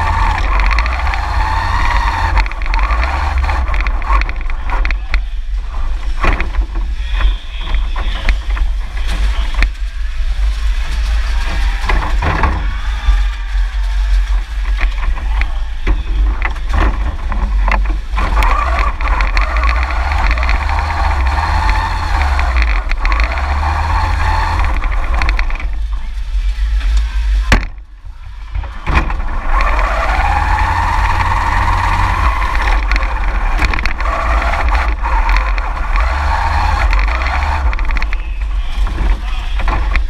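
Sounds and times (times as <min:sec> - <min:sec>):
electric motors whining: 0:00.0 - 0:05.5, 0:11.3 - 0:26.1, 0:28.4 - 0:40.0
heavy rumble of frame shaking: 0:00.0 - 0:40.0.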